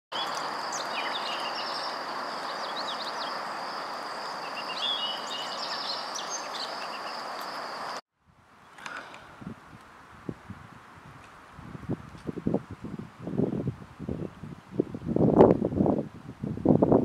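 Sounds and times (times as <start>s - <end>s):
birds chirping and calling: 0.2s - 3.5s, 4.4s - 7.3s
steady rushing hiss: 0.2s - 8.0s.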